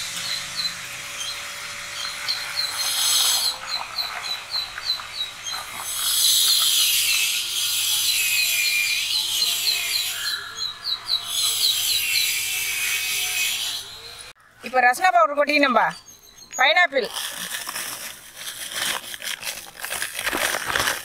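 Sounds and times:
bird chirping: 0:00.0 - 0:07.2, 0:07.8 - 0:12.9, 0:13.6 - 0:16.9.

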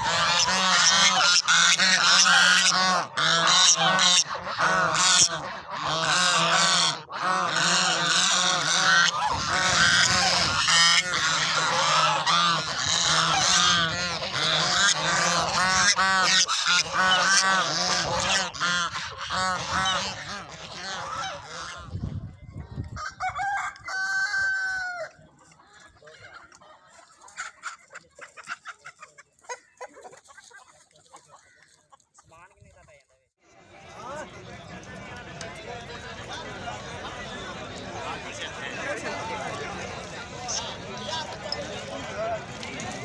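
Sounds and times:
chicken calling: 0:00.0 - 0:22.0
geese honking: 0:00.0 - 0:22.0.

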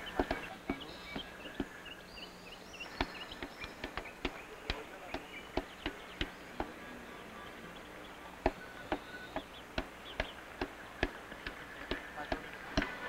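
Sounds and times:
knife chopping stems on wood: 0:00.0 - 0:01.8, 0:02.9 - 0:06.8, 0:08.4 - 0:13.0
faint high chirping calls: 0:00.0 - 0:11.1.

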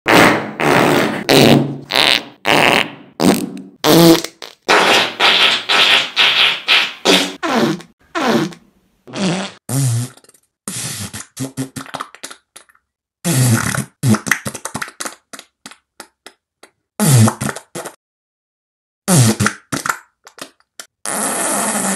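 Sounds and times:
fart sound effects: 0:00.1 - 0:11.9, 0:13.2 - 0:14.4, 0:17.0 - 0:18.0, 0:19.1 - 0:19.9, 0:21.0 - 0:21.9.

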